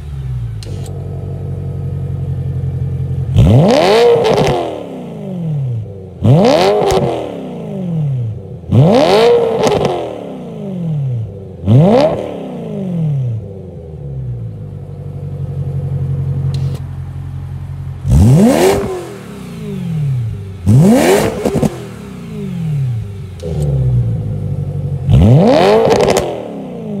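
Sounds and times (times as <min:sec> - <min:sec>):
car engine idling and revving: 0:00.0 - 0:27.0
exhaust crackles: 0:14.5 - 0:27.0.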